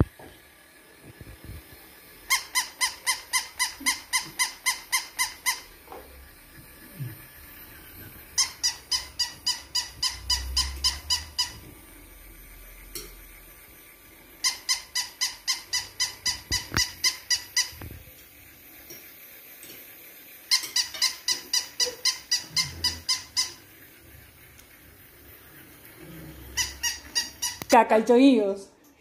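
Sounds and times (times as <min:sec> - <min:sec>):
toy electronic chirping beeps: 0:08.4 - 0:11.6.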